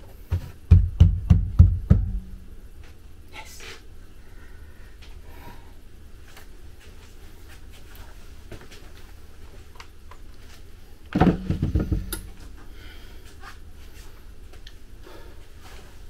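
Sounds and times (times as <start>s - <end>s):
low steady hum: 0.0s - 16.0s
knocks and rattling: 11.2s - 12.4s.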